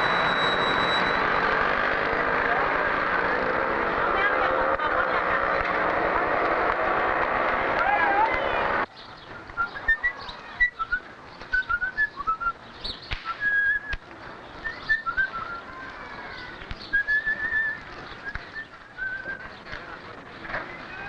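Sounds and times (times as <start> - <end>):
faint street background: 0.0 - 21.0
person whistling a tune: 9.6 - 12.6, 13.3 - 14.0.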